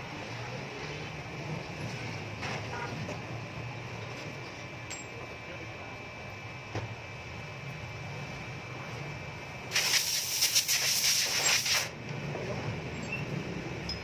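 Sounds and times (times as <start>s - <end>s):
low background hum: 0.0s - 14.0s
loud fluttering hiss: 9.7s - 11.9s.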